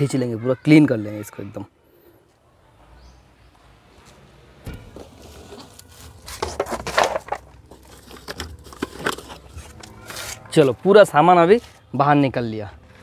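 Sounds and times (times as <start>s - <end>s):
knocking and scraping in car: 4.6s - 9.8s.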